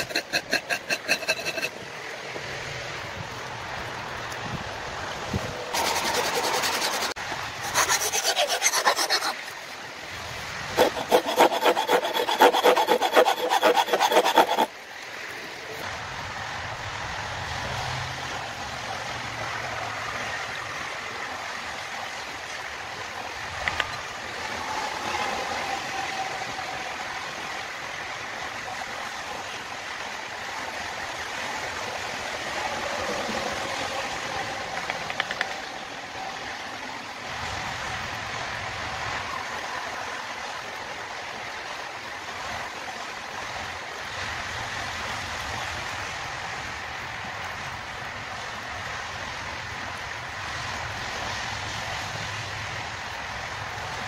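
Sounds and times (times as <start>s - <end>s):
rasp scraping wooden handle: 0.0s - 1.8s, 5.8s - 9.5s, 10.8s - 14.7s.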